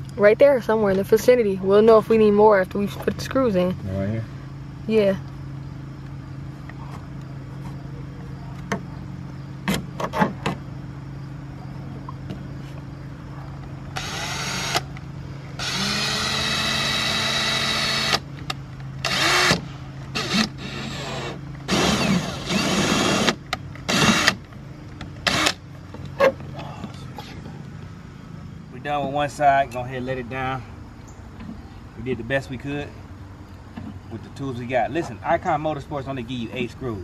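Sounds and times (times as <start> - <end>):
steady low hum: 0.0 - 37.0
power drill driving screws: 14.0 - 14.8, 15.6 - 18.2, 19.0 - 24.4, 25.2 - 25.6.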